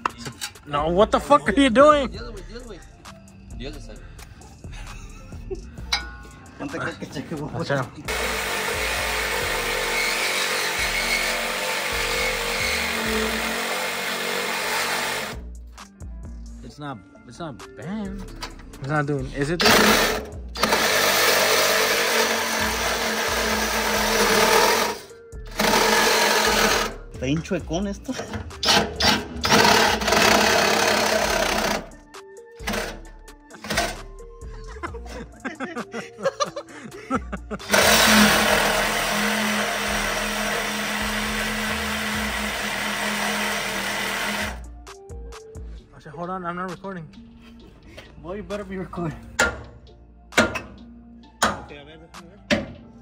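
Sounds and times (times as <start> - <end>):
power tool cutting steel: 8.1 - 15.4, 19.6 - 27.0, 28.3 - 32.0, 32.6 - 34.0, 37.6 - 44.6.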